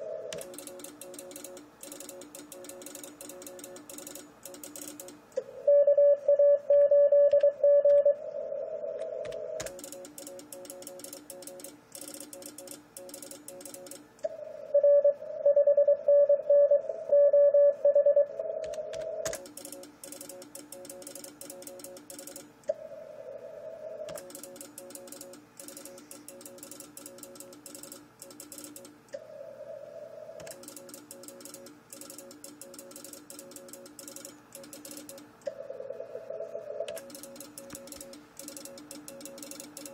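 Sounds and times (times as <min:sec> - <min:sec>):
morse code tones: 0:00.0 - 0:08.2, 0:14.7 - 0:18.9
weak morse code signals: 0:00.0 - 0:08.2, 0:14.7 - 0:22.5, 0:24.1 - 0:28.9, 0:30.5 - 0:39.9
computer keyboard clicks: 0:00.3 - 0:05.2, 0:09.0 - 0:14.1, 0:18.6 - 0:22.5, 0:24.1 - 0:29.0, 0:30.4 - 0:35.4, 0:36.9 - 0:39.9
loud morse tone: 0:14.4 - 0:18.6
steady higher tone: 0:22.7 - 0:24.2.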